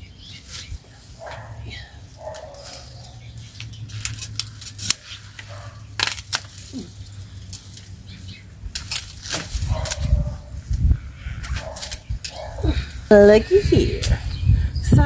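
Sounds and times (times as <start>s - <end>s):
dry rose canes snapping: 2.1s - 8.0s, 8.6s - 10.8s, 11.4s - 12.7s
pruning shears snipping: 2.2s - 8.0s, 8.7s - 10.4s, 11.4s - 12.6s.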